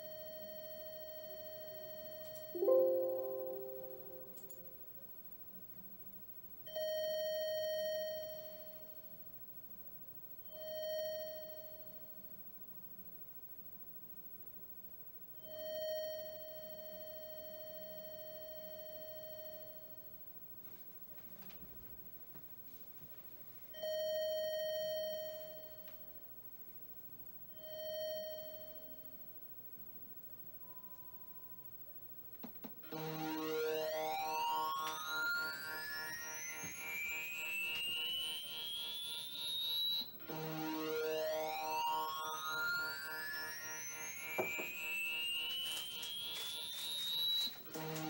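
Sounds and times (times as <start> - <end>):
pulse-wave test tones: 2.6 - 4.8, 33.1 - 48.0.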